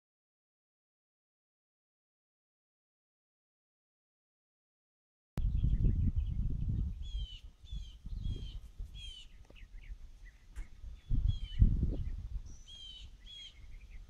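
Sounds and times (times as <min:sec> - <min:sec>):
small birds chirping: 0:05.4 - 0:14.0
wind rumbling on microphone: 0:05.4 - 0:14.0.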